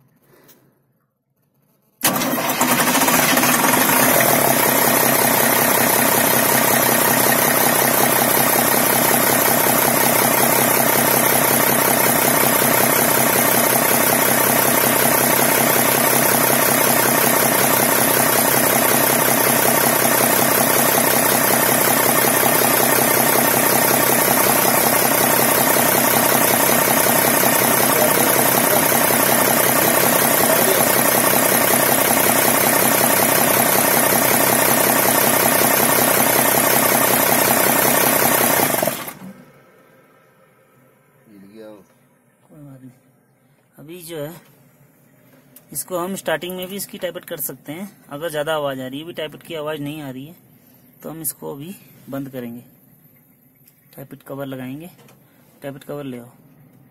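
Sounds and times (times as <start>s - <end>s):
diesel truck engine idling: 2.0s - 37.0s.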